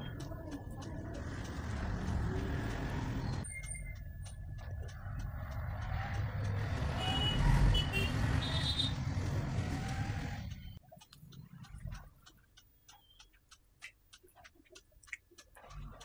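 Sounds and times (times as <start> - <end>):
vehicle engine rumble: 0.0 - 12.6.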